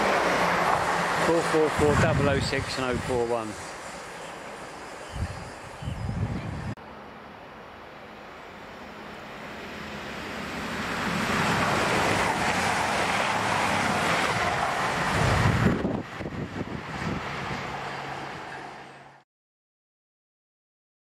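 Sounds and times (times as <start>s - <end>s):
wind gust on microphone: 0.0s - 3.7s, 5.0s - 6.8s, 10.6s - 18.8s
train rushing past: 0.0s - 19.2s.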